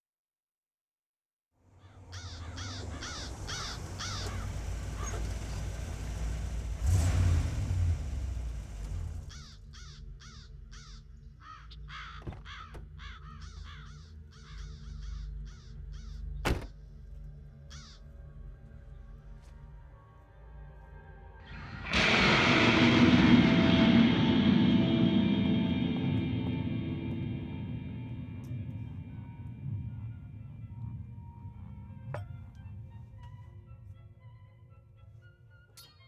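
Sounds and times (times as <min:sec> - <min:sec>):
crows cawing: 0:01.8 - 0:05.3, 0:09.3 - 0:16.4, 0:17.6 - 0:18.1
steady low rumble: 0:20.9 - 0:33.8.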